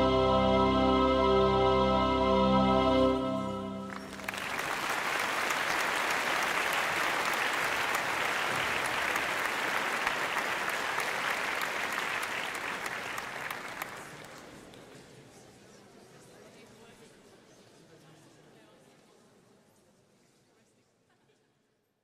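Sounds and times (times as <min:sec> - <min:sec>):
music final chord: 0:00.0 - 0:04.3
audience applauding: 0:03.9 - 0:14.8.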